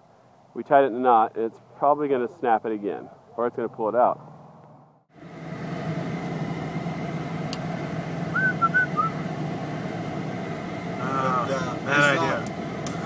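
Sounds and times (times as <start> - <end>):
engine hum and road noise: 0.0 - 13.0
short high chirps: 8.4 - 9.2.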